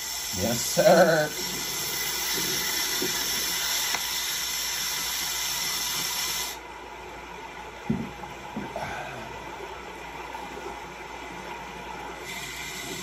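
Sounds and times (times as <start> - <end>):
steady hissing noise: 0.0 - 13.0
soft knocks: 7.8 - 8.8.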